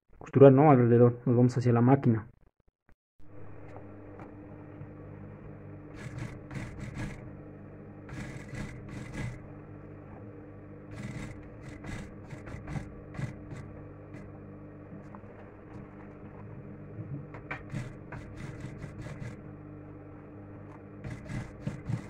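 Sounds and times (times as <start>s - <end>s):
sewing machine motor humming: 3.3s - 22.0s.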